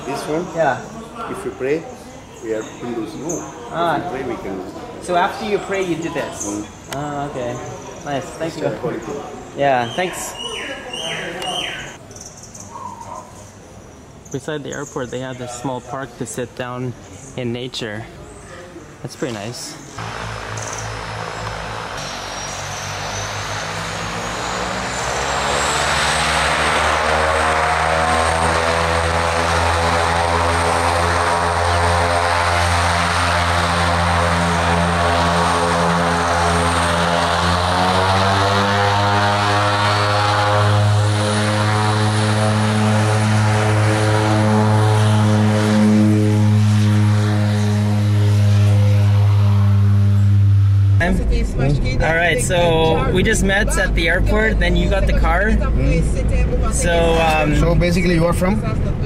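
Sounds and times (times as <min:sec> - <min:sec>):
high engine whine: 0:18.9 - 0:59.0
propeller airplane engines running: 0:18.9 - 0:59.0.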